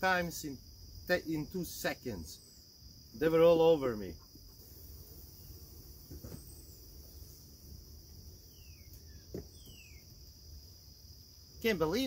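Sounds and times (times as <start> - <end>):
insect drone: 0.0 - 12.0
bird chirps: 8.4 - 10.2.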